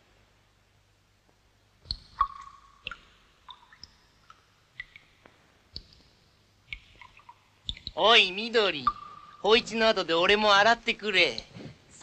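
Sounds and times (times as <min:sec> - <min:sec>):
water dripping and splashing: 0:01.8 - 0:10.6.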